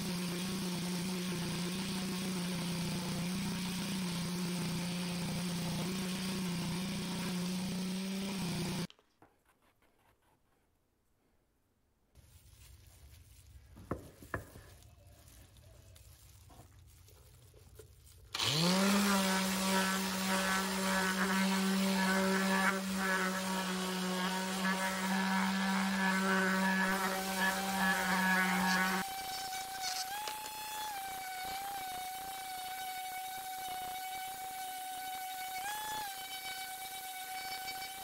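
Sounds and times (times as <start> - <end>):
electric sander humming: 0.0 - 8.9, 18.4 - 38.0.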